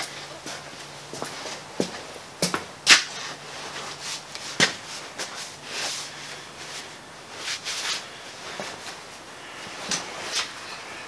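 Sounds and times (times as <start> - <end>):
faint steady hum: 0.0 - 11.0
cloth rustling: 3.1 - 10.6.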